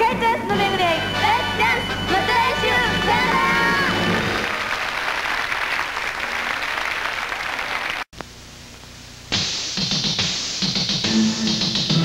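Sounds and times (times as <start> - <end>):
theme music: 0.5 - 4.5, 11.0 - 12.0
audience applause: 3.5 - 8.1.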